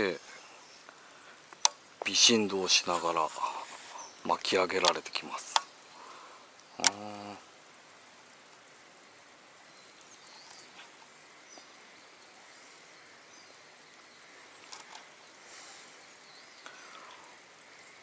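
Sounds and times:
faint steady hiss: 0.0 - 18.0
light click: 4.4 - 5.7, 6.6 - 7.0
faint high bird chirps: 9.6 - 18.0.

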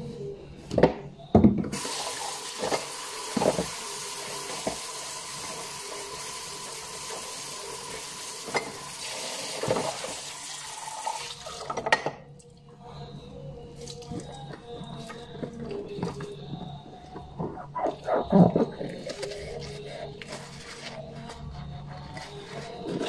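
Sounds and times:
tap running into a sink: 1.7 - 3.8.

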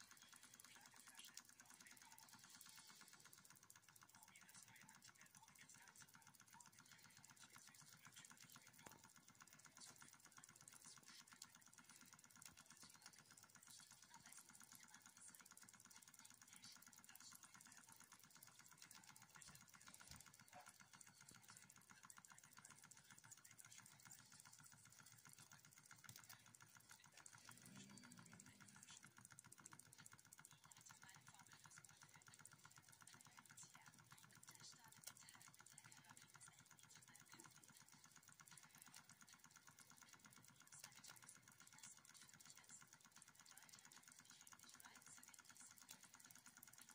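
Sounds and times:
miniature steam engine ticking: 0.0 - 46.9.

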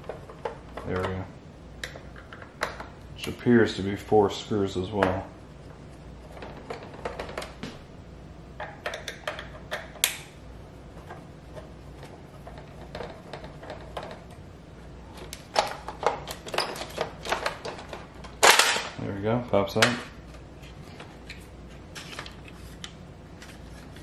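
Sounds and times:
plastic parts rattling: 15.5 - 18.9.

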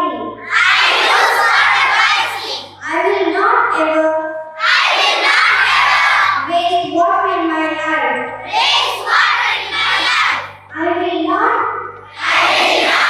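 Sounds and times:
children singing: 0.5 - 2.7, 4.6 - 6.5, 8.5 - 10.6, 12.2 - 13.0
low instrumental accompaniment: 4.7 - 13.0.

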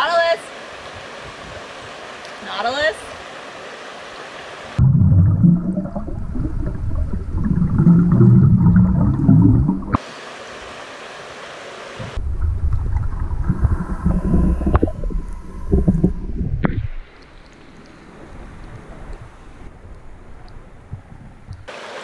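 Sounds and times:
open-air hiss: 0.0 - 4.8, 10.0 - 12.2, 21.6 - 22.0
underwater bubbling and rumbling: 4.8 - 10.0, 12.1 - 21.7.

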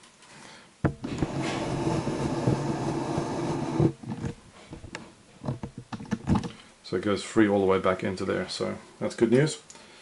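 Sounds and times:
plastic scraping and rattling: 0.9 - 6.6.

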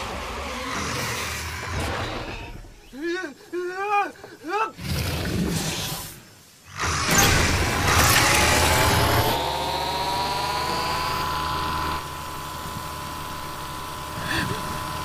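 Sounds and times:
vehicle engine starting up: 6.8 - 15.0
rising engine whine: 7.1 - 15.0.

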